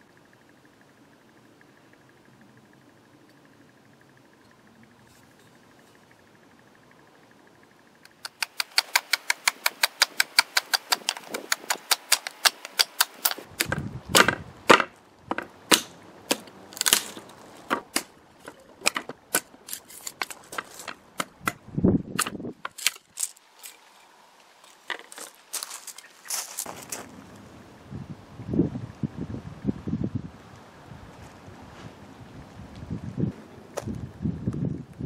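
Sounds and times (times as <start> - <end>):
billhook chopping wood: 8.3 - 20.4, 21.2 - 21.6.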